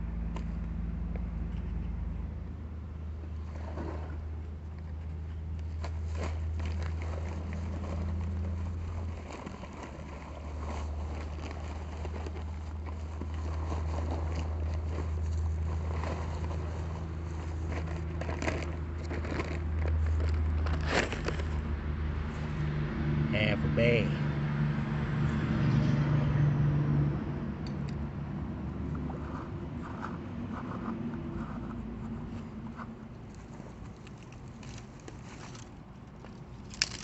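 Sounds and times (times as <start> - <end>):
dry mix scraping and pattering: 5.3 - 21.8
paper bag crinkling: 5.7 - 21.8.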